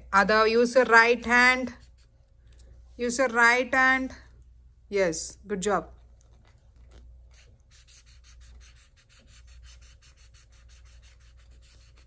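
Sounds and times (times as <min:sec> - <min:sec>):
marker scribbling on paper: 0:01.2 - 0:02.2, 0:07.3 - 0:12.0.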